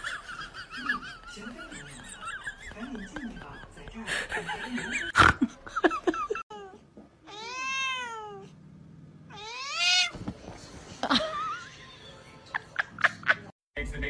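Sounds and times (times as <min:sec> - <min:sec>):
cat meowing: 0:06.5 - 0:08.5, 0:09.3 - 0:10.2.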